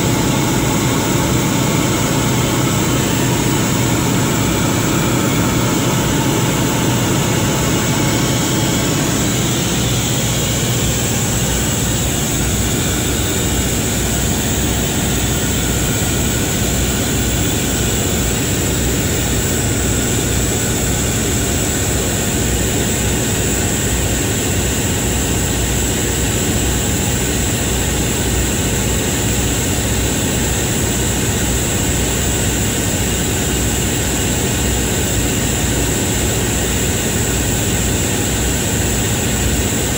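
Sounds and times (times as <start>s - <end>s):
high whine: 0.0s - 21.4s
generator engine rumble: 0.0s - 23.4s.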